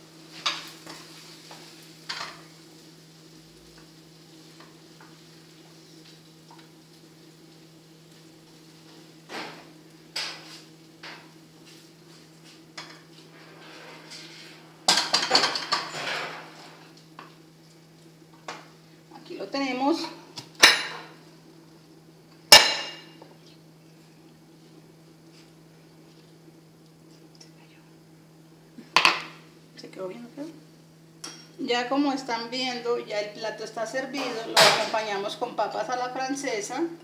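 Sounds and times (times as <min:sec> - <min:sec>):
steady low hum: 0:00.0 - 0:37.0
wooden spoon scraping a pan: 0:11.6 - 0:14.8, 0:15.7 - 0:16.9.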